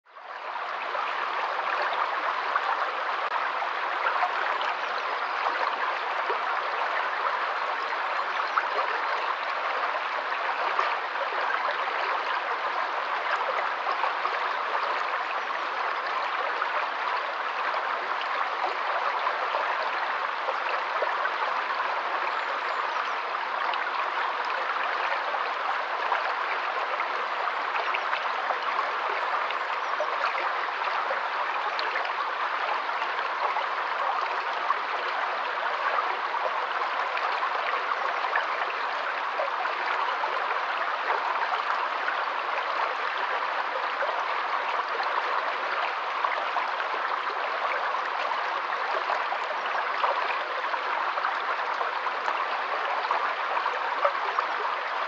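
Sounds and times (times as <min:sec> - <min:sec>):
stream rushing over stones: 0:00.2 - 0:55.0.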